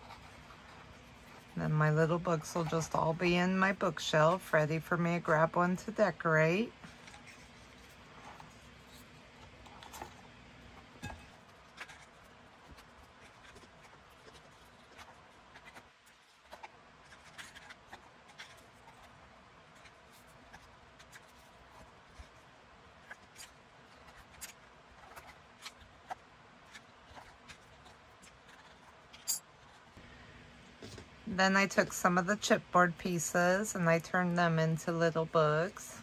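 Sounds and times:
paper books handled with clicks: 0:06.8 - 0:30.0.

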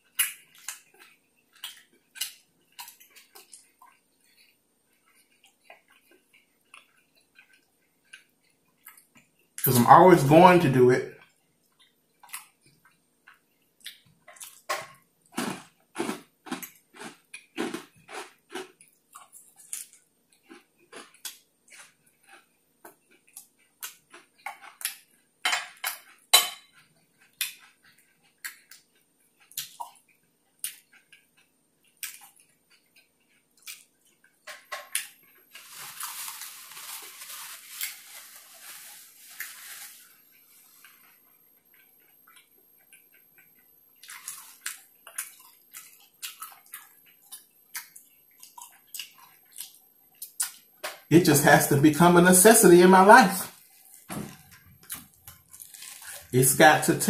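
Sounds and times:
mouth chewing food: 0:00.0 - 0:09.9, 0:11.1 - 0:37.0, 0:40.3 - 0:51.1, 0:53.4 - 0:57.0
wet mouth clicks and smacks: 0:27.3 - 0:31.3, 0:31.9 - 0:34.3, 0:44.0 - 0:51.0
soft hiss: 0:35.5 - 0:41.5.

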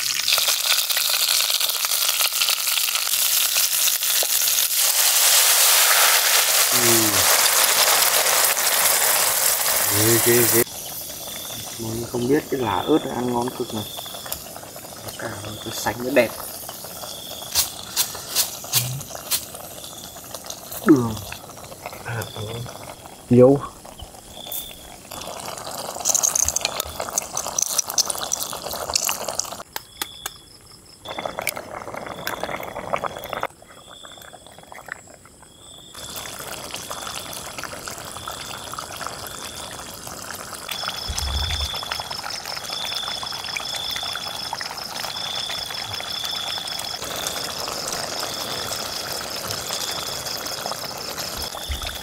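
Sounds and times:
sauce bubbling and sizzling in pan: 0:00.0 - 0:29.7, 0:31.1 - 0:52.0
sauce squeezed from bottle: 0:16.3 - 0:19.7, 0:24.4 - 0:29.5.

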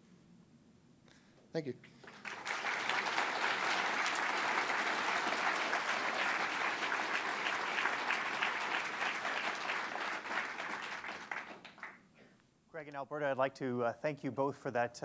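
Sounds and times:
audience applauding: 0:02.0 - 0:12.1.

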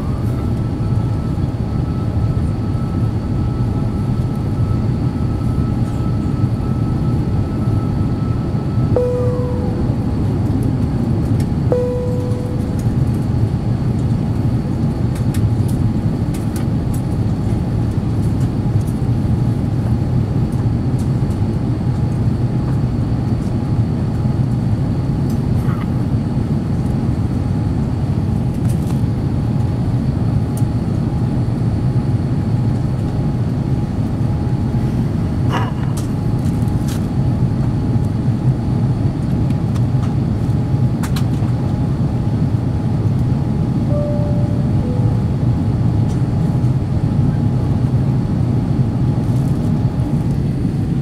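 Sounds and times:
airplane cabin engine rumble: 0:00.0 - 0:51.0
faint steady high tone: 0:06.0 - 0:10.6, 0:11.7 - 0:13.2, 0:43.9 - 0:45.9.

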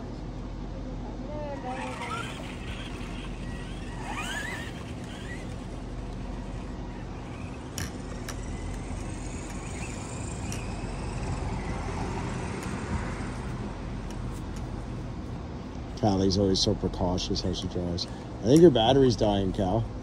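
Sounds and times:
outdoor rumble: 0:00.8 - 0:20.0
rc truck electric motor whine: 0:01.4 - 0:14.7.

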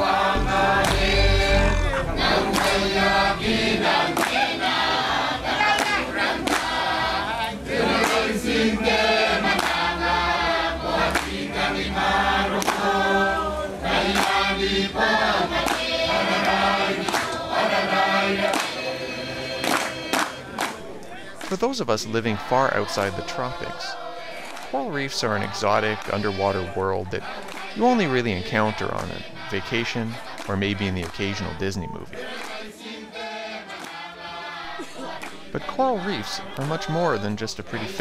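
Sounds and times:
choir singing: 0:00.0 - 0:38.0.

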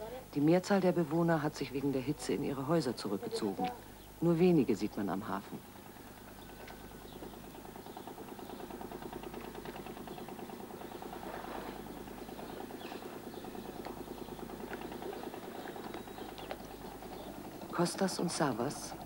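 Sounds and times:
motor boat engine chugging: 0:04.9 - 0:19.0.

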